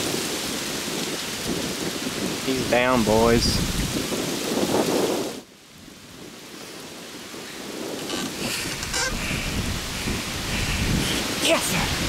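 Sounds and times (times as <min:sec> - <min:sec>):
microphone handling noise: 0:07.7 - 0:11.3.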